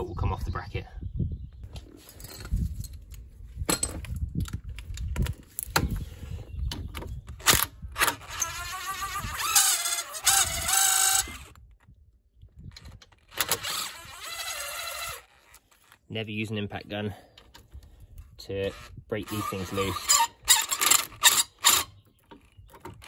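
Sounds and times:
impact driver motor whine: 8.0 - 11.6.

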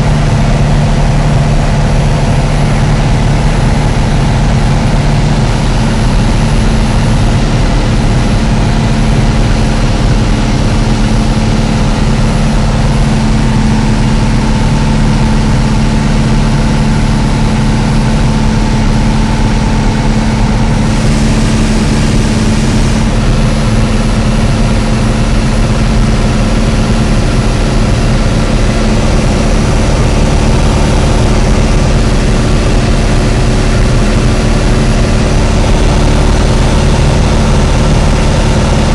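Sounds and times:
aircraft engine and propeller drone: 0.0 - 38.9.

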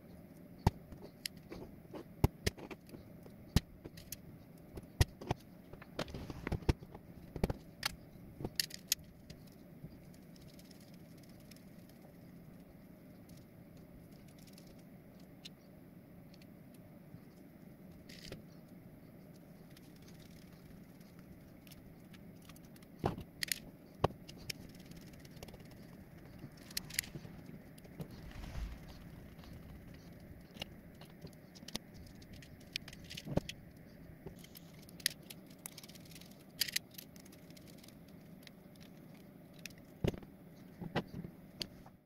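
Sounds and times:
faint steady hum: 0.0 - 42.0
screws and plastic parts clicking: 34.3 - 39.9.

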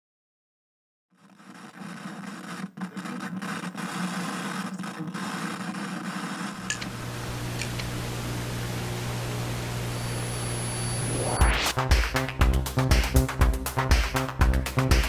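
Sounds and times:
hissing static: 1.4 - 11.9
low mains hum: 6.6 - 11.4.

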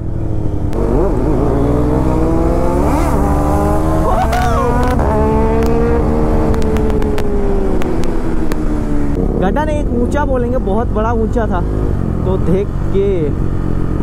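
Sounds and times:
motorcycle engine accelerating: 0.0 - 14.0
wind rush: 1.4 - 9.3.

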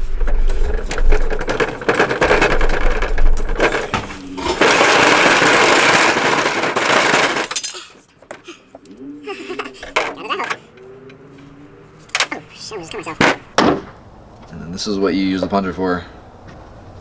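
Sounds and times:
harsh scraping: 0.0 - 7.7.

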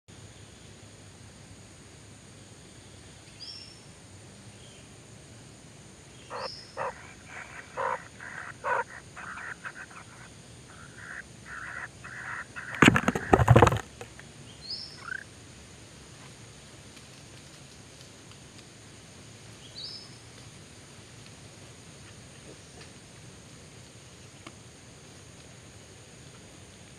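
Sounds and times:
nestlings raspy begging calls: 6.3 - 13.8, 15.0 - 15.2
scuffle of knocks and scrapes: 12.1 - 14.1.

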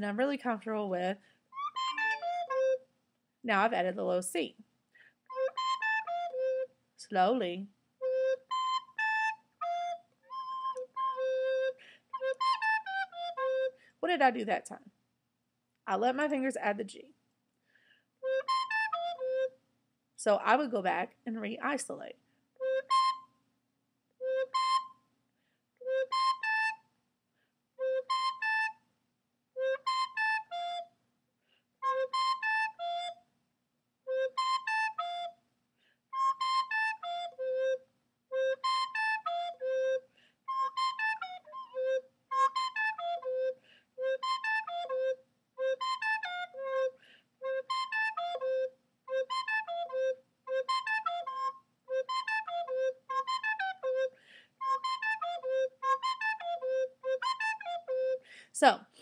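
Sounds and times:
soprano recorder playing: 1.6 - 2.8, 5.3 - 13.8, 18.2 - 19.6, 22.6 - 23.3, 24.2 - 25.0, 25.8 - 26.9, 27.8 - 28.8, 29.6 - 30.9, 31.8 - 33.2, 34.1 - 35.4, 36.2 - 58.3.

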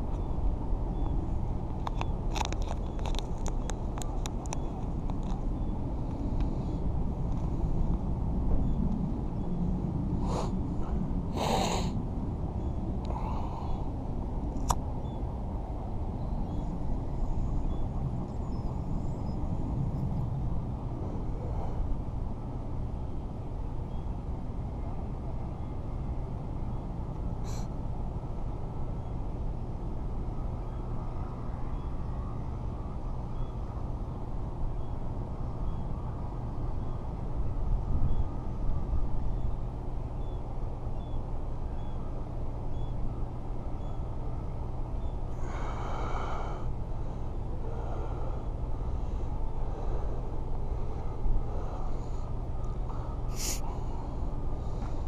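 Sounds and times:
low outdoor rumble: 0.0 - 55.0
short hissing noises: 53.3 - 53.7.

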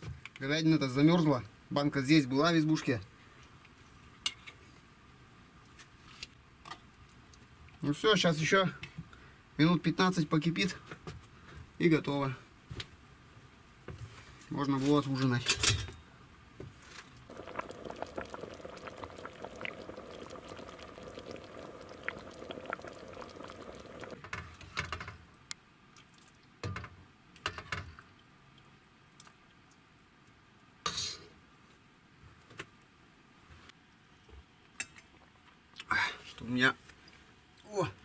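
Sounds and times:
porridge bubbling and popping: 17.2 - 25.1.

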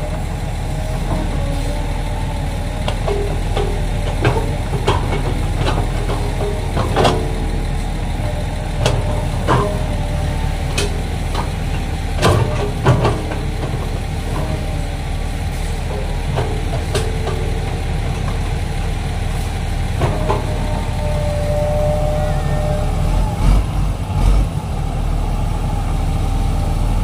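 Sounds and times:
excavator diesel engine running: 0.0 - 27.0
metal clanks from bucket: 2.9 - 7.6, 8.2 - 14.9
thin whine: 13.7 - 23.5.

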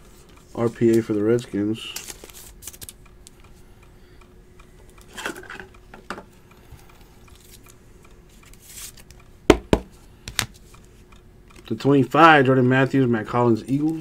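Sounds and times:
cards sliding and rustling: 1.9 - 3.0, 8.4 - 9.2.

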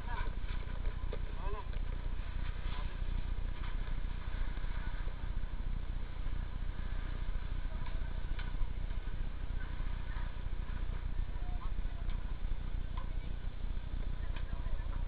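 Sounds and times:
vehicle engine running: 0.0 - 15.0
faint clicks and knocks: 7.7 - 11.1.

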